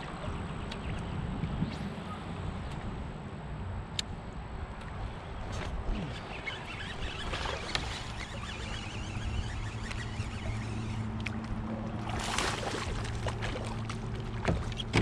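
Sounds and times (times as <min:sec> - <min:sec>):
water lapping and trickling: 0:00.0 - 0:03.3, 0:04.6 - 0:15.0
brief splash: 0:12.0 - 0:14.0.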